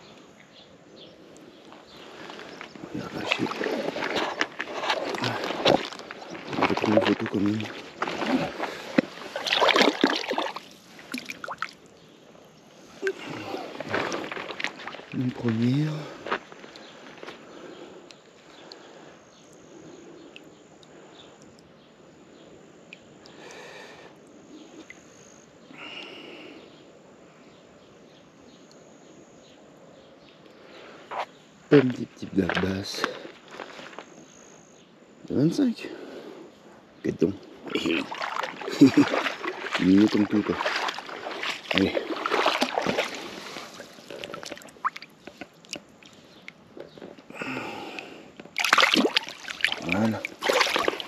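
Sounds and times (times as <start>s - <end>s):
faint outdoor ambience: 0.0s - 51.0s
soft water sounds: 0.0s - 51.0s
small water drips: 1.3s - 15.6s, 16.5s - 17.4s, 20.2s - 21.7s, 22.8s - 23.6s, 24.8s - 25.2s, 37.4s - 51.0s
loud splash of fish: 9.4s - 11.7s, 48.6s - 51.0s.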